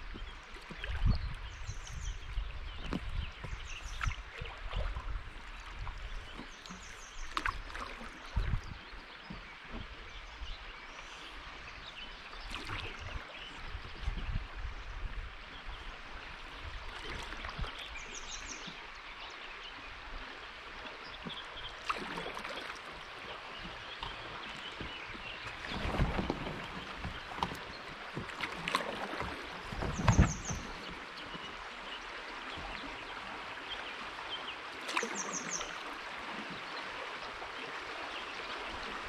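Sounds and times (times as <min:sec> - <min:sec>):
flowing river water: 0:00.0 - 0:39.0
birds singing: 0:29.2 - 0:35.8.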